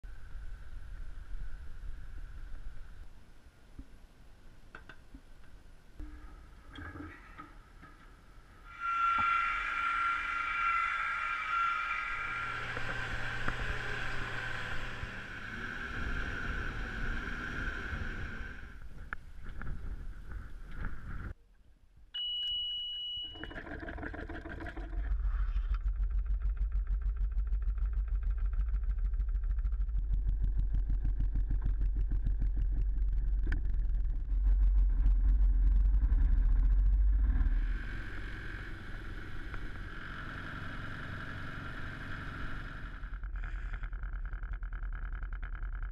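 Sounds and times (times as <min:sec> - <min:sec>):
steady whine: 0:07.8 - 0:19.8
short high beep: 0:22.2 - 0:23.5.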